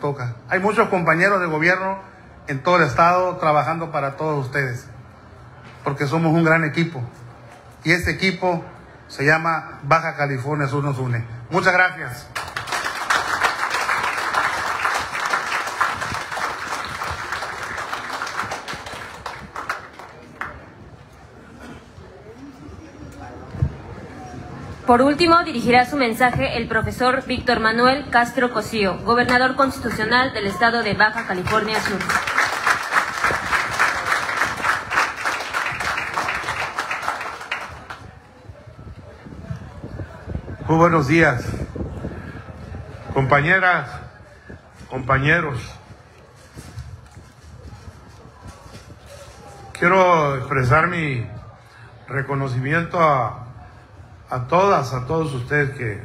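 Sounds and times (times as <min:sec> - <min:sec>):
audience applauding: 0:12.4 - 0:20.7, 0:31.2 - 0:38.0.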